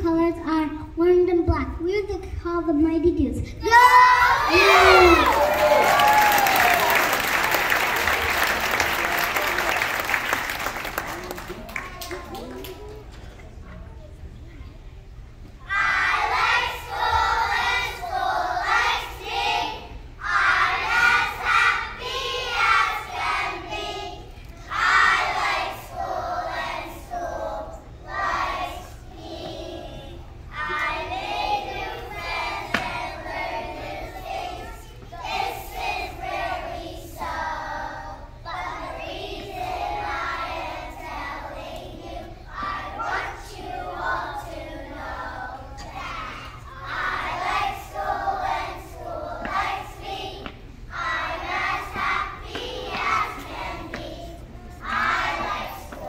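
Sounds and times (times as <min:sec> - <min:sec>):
children singing together: 0:15.7 - 0:56.0.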